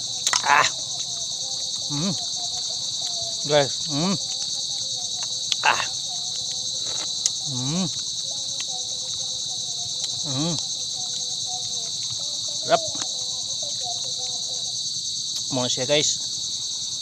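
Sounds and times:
insect chorus drone: 0:00.0 - 0:17.0
person murmuring: 0:00.3 - 0:00.8, 0:01.8 - 0:02.3, 0:03.5 - 0:04.3, 0:05.6 - 0:06.0, 0:07.4 - 0:08.0, 0:10.2 - 0:10.7.

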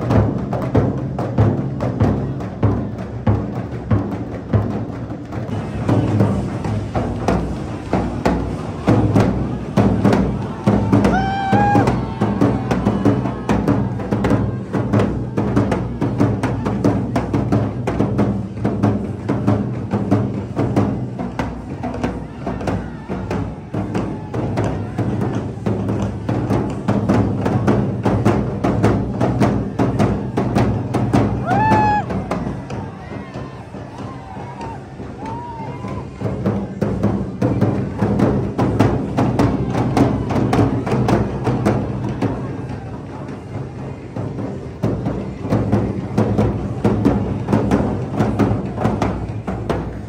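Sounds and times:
bass drums beaten fast: 0:00.0 - 0:35.3.

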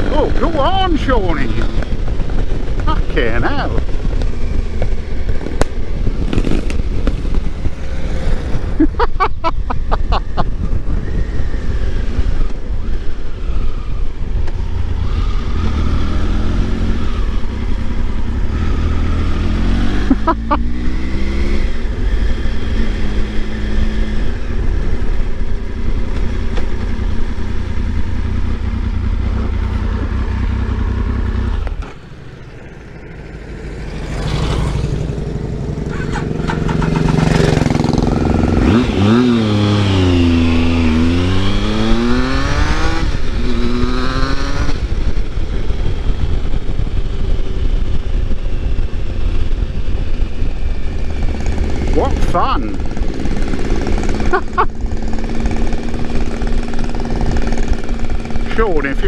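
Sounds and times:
wind noise: 0:00.0 - 0:27.2
motorcycle engine at road speed: 0:00.0 - 0:59.0.

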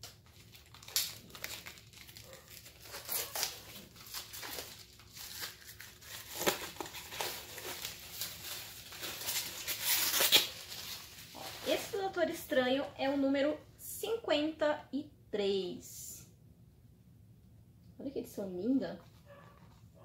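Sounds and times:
packaging crinkling and tearing: 0:00.0 - 0:12.0.

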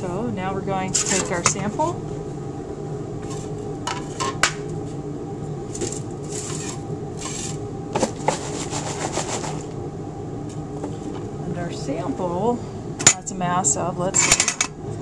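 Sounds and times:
steady low hum: 0:00.0 - 0:15.0
short scraping rustles: 0:05.8 - 0:09.7.

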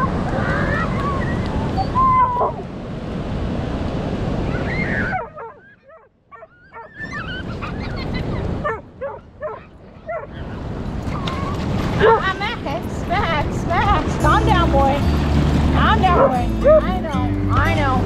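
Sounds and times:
surf rushing: 0:00.0 - 0:05.6, 0:06.7 - 0:18.0
wind: 0:00.0 - 0:18.0
dog whimpering and yipping: 0:04.8 - 0:10.3.

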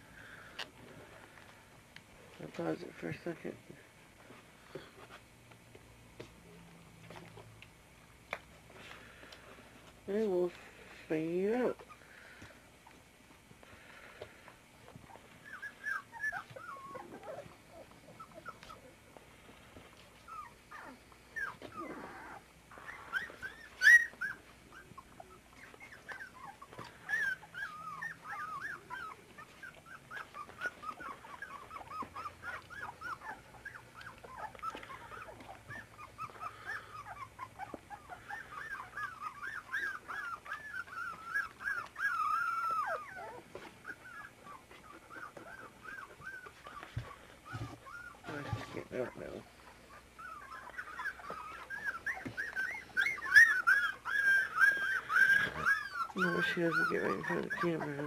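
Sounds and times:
puppies whimpering and squealing: 0:02.4 - 0:05.2, 0:06.2 - 0:58.0.

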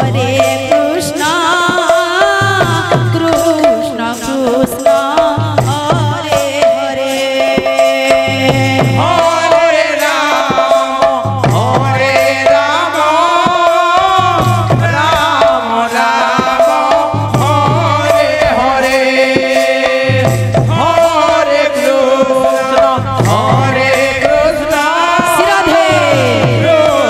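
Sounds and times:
barrel hand drums: 0:00.0 - 0:27.0
woman singing into microphone: 0:00.0 - 0:27.0.

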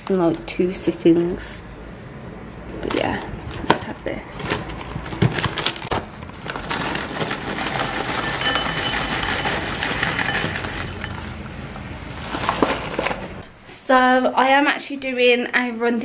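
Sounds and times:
granola rattling into a bowl: 0:06.6 - 0:11.4.

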